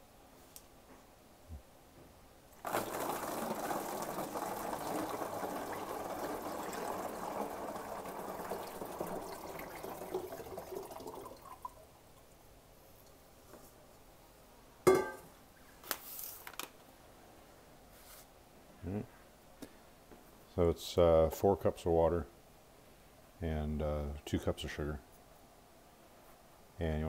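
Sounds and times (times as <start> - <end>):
water pouring into plastic bottle: 2.6 - 11.8.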